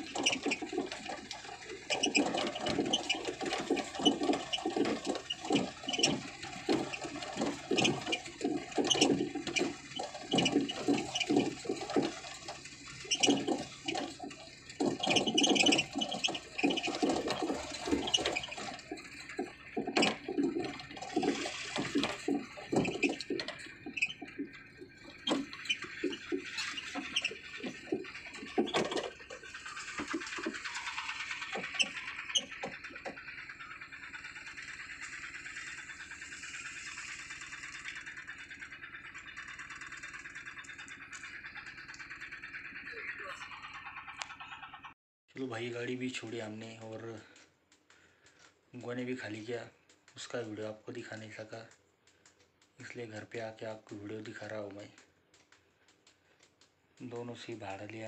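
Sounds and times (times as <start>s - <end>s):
body knocks and rattles: 0.0s - 30.7s
truck engine running: 0.0s - 45.0s.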